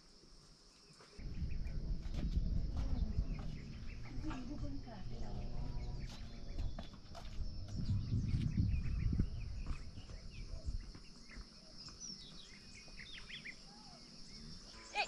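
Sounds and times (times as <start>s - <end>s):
insect drone: 0.0s - 15.0s
small birds chirping: 0.4s - 15.0s
low rumble: 1.2s - 10.8s.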